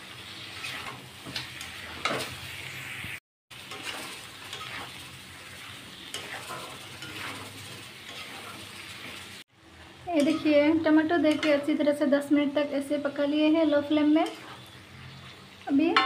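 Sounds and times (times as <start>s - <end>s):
food sizzling in metal pan: 0.0s - 16.0s
metal spatula scraping: 0.2s - 2.8s, 3.6s - 9.4s, 14.1s - 15.4s.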